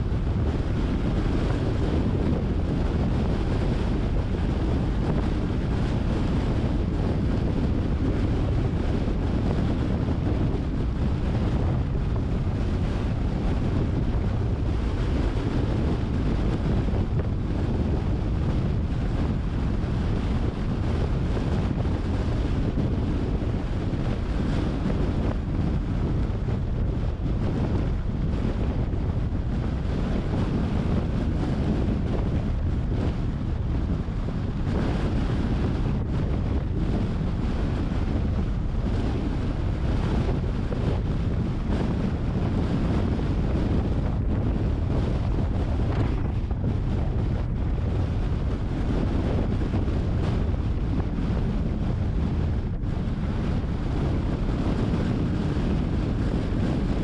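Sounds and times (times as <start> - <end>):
car wind and road noise: 0.0 - 57.0
wind buffeting microphone: 0.0 - 57.0.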